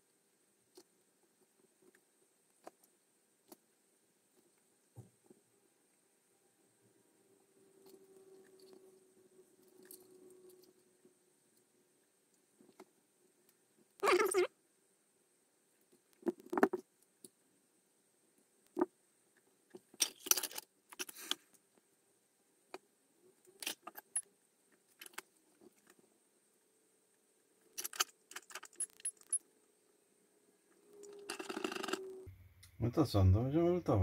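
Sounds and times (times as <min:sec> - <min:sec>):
faint steady hum: 0:00.0 - 0:34.0
small tools clicking and rattling: 0:19.8 - 0:21.4, 0:23.6 - 0:24.3, 0:24.9 - 0:26.0, 0:27.8 - 0:29.5, 0:30.9 - 0:32.1.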